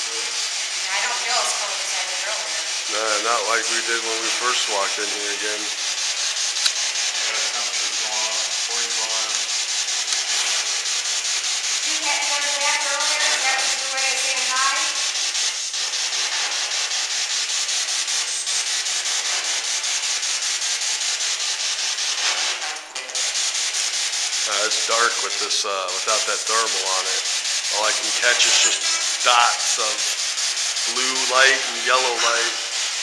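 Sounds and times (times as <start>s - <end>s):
pulsing radio static: 24.5s - 30.2s.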